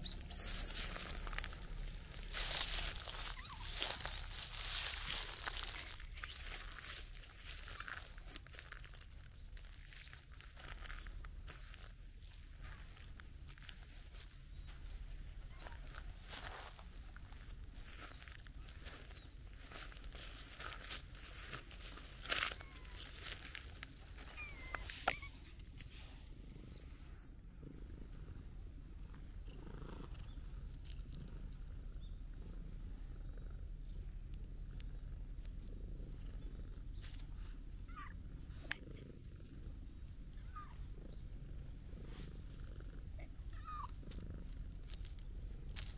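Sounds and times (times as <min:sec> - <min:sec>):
cat purring: 0:00.0 - 0:45.9
cat meowing: 0:43.6 - 0:44.0.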